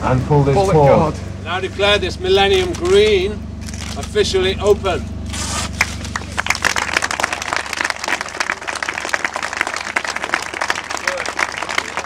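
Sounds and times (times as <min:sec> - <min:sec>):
crowd applauding: 0:05.8 - 0:12.0.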